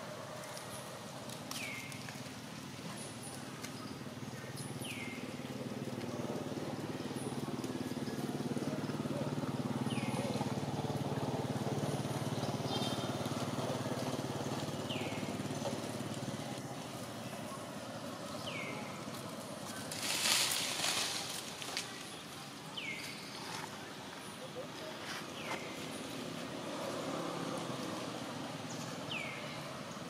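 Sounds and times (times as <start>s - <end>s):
loud rustle: 19.0s - 22.3s.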